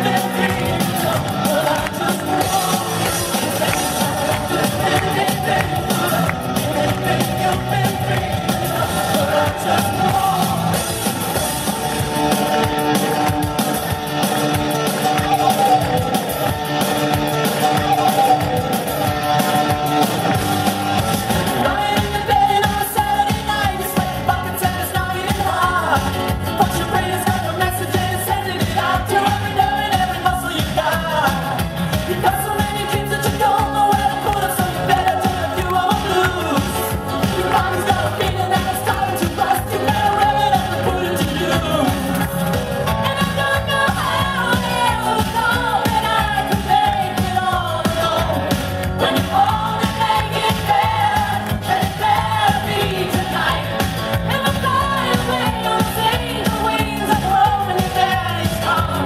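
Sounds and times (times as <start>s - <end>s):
up-tempo song with singer: 0.0s - 59.0s.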